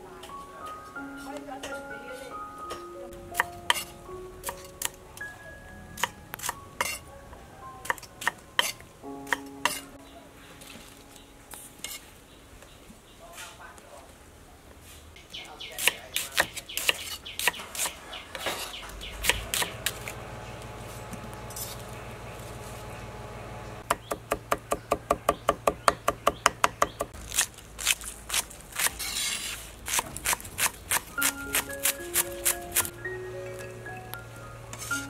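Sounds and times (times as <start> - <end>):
knife chopping on wooden board: 15.8 - 20.1.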